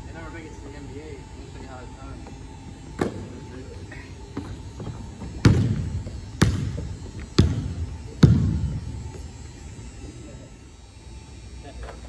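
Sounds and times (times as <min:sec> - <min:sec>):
basketball bouncing on hard court: 0:05.2 - 0:08.7.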